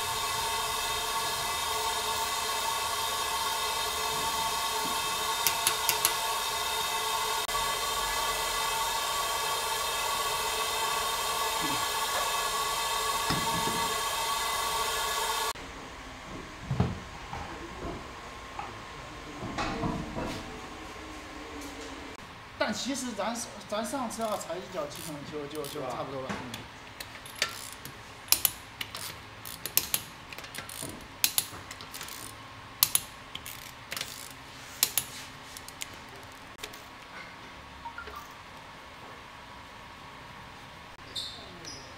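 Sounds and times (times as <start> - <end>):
workshop hiss with held tones: 0.0 - 16.2, 16.8 - 41.9
hand ratchet clicking: 5.4 - 6.2, 24.9 - 26.0, 27.0 - 35.9.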